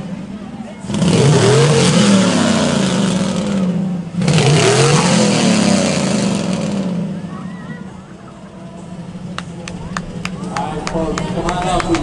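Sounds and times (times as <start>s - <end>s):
car engine revving hard: 0.8s - 7.3s.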